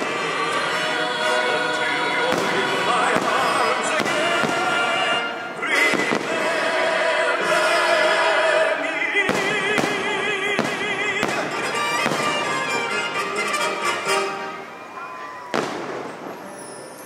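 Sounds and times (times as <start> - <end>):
orchestral music: 0.0 - 17.0
firework bangs: 2.2 - 6.8, 9.2 - 14.2, 15.2 - 17.0.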